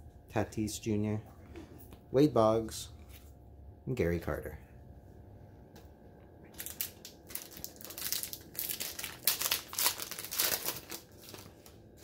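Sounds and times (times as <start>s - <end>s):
foil wrapper crinkling: 6.6s - 12.0s.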